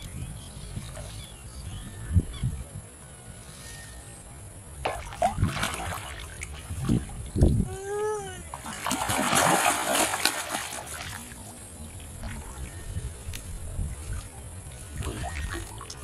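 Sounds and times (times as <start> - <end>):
fish splashing in water: 4.8 - 7.2, 8.5 - 13.5, 14.1 - 16.0.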